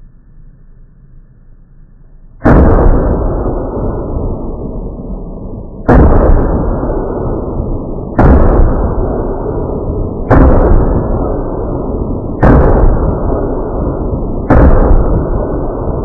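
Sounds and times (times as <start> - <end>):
loud gunshots: 2.4 - 4.2, 5.8 - 16.0
rolling boom: 2.4 - 16.0.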